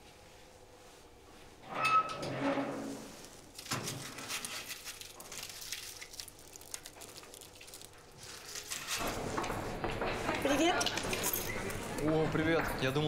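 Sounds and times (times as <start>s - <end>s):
aluminium foil crinkling: 3.1s - 9.3s.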